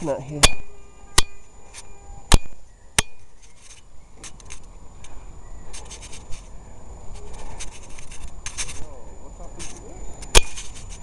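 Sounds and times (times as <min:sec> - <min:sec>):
sharp metallic knocks: 0:00.4 - 0:01.4, 0:02.3 - 0:03.3.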